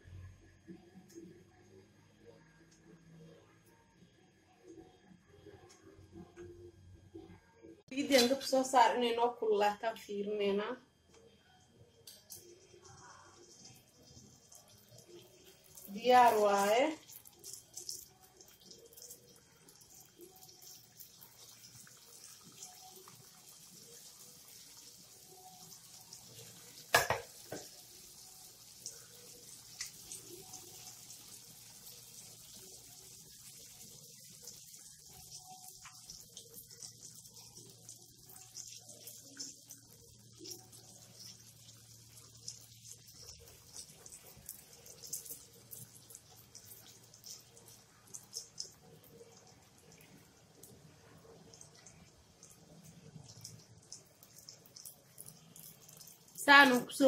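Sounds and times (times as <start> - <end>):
oil sizzling and crackling: 12.0 - 57.0.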